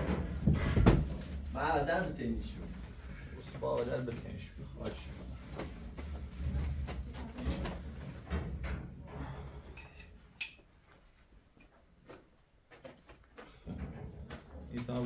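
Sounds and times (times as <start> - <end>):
objects knocking and clattering: 0.0 - 1.6, 4.9 - 10.8, 12.9 - 15.0.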